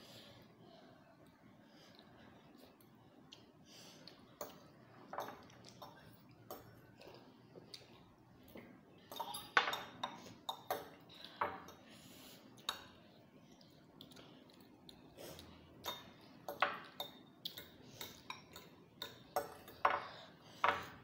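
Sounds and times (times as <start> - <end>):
cutlery clinking on glass bowls: 9.1 - 11.8.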